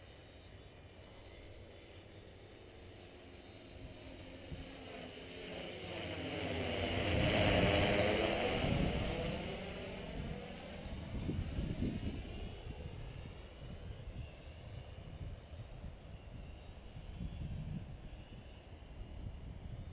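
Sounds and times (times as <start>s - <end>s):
drone propellers whirring: 0.0s - 19.9s.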